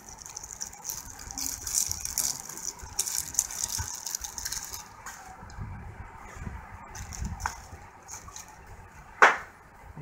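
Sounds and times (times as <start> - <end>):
plastic wrapper crinkling: 0.0 - 5.3, 6.9 - 8.6.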